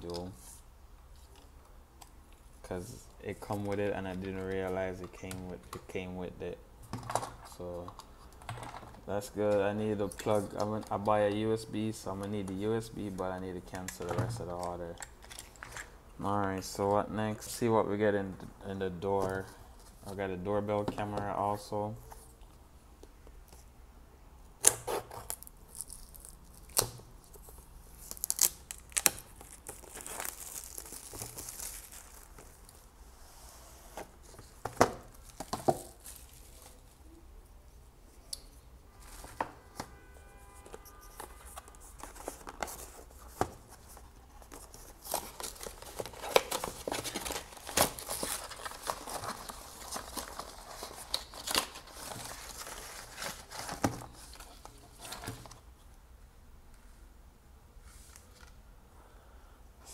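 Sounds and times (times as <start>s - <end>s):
plastic wrap slit and torn: 28.0s - 32.8s
cardboard box opened: 41.0s - 55.6s.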